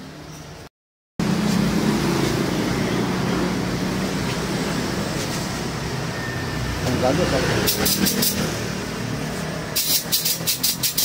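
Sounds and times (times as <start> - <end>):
compressed air hissing: 7.7 - 8.5, 9.7 - 11.0.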